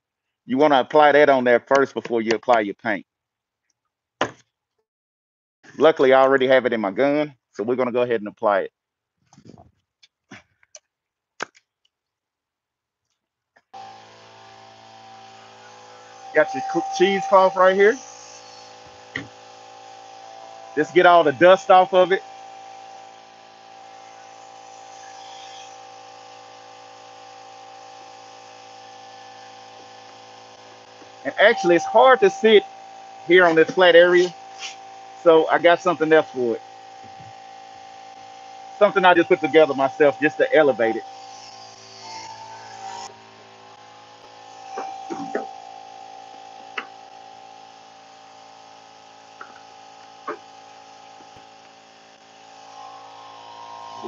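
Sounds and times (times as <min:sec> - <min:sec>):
steady hum: 0:13.8 - 0:54.0.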